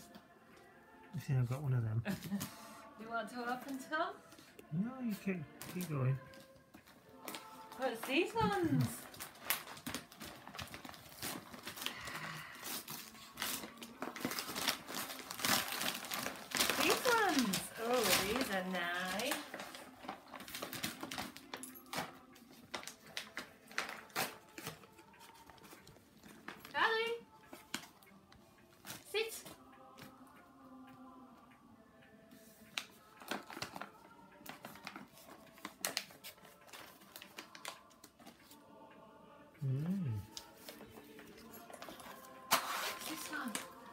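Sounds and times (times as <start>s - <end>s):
wrapping paper crinkling and tearing: 7.1s - 25.8s, 32.8s - 38.6s, 40.3s - 43.9s.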